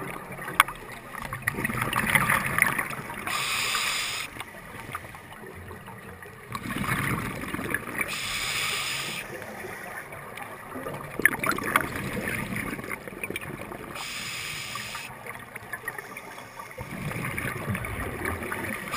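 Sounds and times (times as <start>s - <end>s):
regulator hissing inhale: 3.3s - 4.4s, 8.1s - 9.9s, 14.0s - 15.1s
rumbling exhale bubbles: 6.5s - 15.1s, 16.8s - 18.9s.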